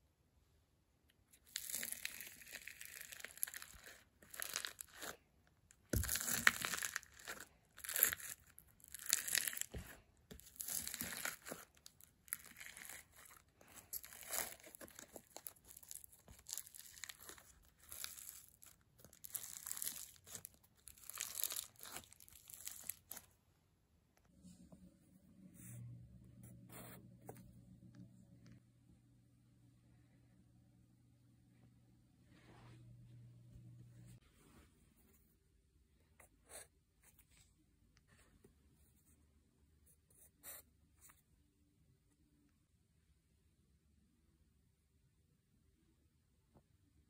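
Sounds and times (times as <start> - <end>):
slime crackling and crunching: 1.4 - 23.3.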